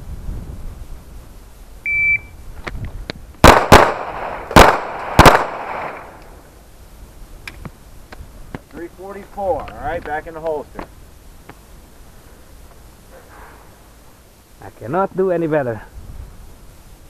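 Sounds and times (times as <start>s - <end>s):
shot timer beep: 1.9s - 2.3s
pistol shots with echo: 3.4s - 6.2s.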